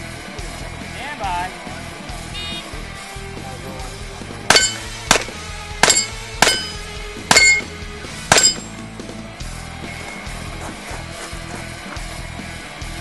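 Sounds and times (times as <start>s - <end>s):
rock guitar music: 0.0s - 13.0s
revolver shots: 4.5s - 8.7s
metallic ring of steel targets: 4.5s - 8.8s.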